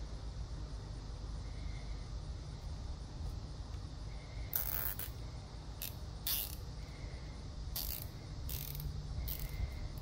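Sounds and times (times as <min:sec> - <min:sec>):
zip tie ratcheting tight: 0:04.5 - 0:05.2, 0:05.8 - 0:06.6, 0:07.8 - 0:10.0.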